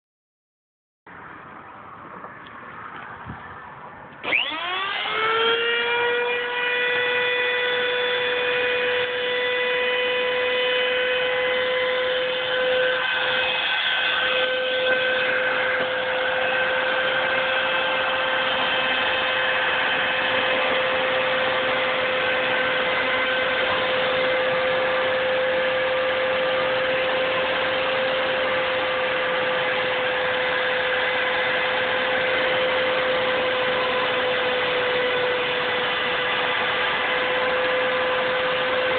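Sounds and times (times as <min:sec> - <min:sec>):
router bit cutting wood: 0:04.2 - 0:38.9
router motor whining: 0:04.2 - 0:38.9.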